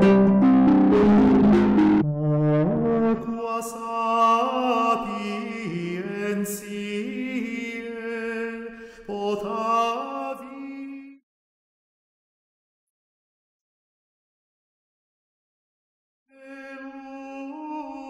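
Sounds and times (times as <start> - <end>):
solo chant-like singing: 3.3 - 11.2, 16.3 - 18.0.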